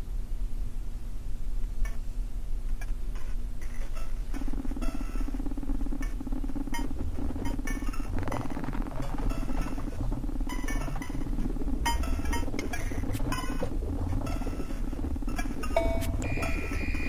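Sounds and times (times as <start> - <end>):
fuller electronic hum: 0.0 - 17.0
low electronic drone: 3.6 - 17.0
clock-like ticks: 4.4 - 17.0.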